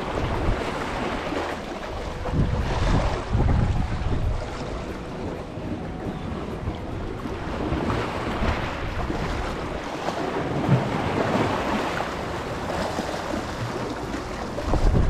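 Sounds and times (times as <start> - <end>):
waves splashing over boulders: 0.0 - 15.0
wind rumbling on microphone: 0.0 - 15.0.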